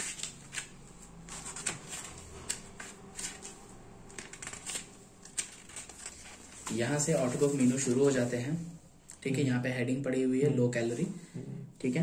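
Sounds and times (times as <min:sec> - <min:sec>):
paper pages rustling: 0:00.0 - 0:08.5.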